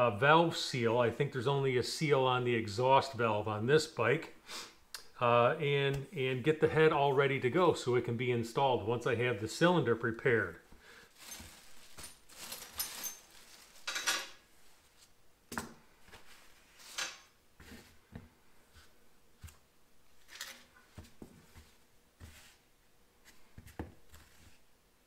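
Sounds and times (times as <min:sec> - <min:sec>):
soft rustling: 0:10.7 - 0:15.2, 0:15.9 - 0:24.7.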